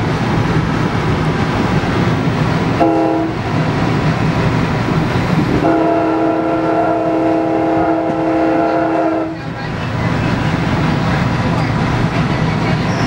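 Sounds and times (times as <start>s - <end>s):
train rumbling on rails: 0.0s - 13.0s
train horn blasts: 2.8s - 3.4s, 5.6s - 9.4s.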